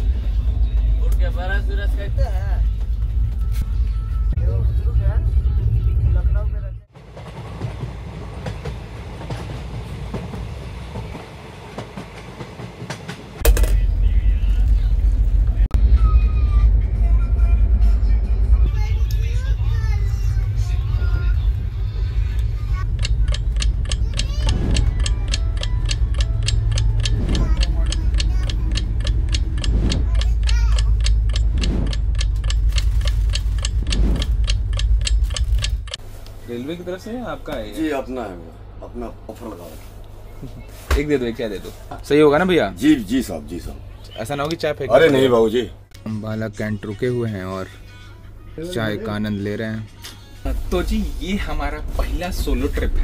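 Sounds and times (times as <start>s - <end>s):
deep steady hum: 0.0s - 6.9s, 13.4s - 36.5s
train rumbling on rails: 0.0s - 44.0s, 50.5s - 53.0s
clock ticking: 22.8s - 36.0s
wheels clicking over rail joints: 22.8s - 36.0s.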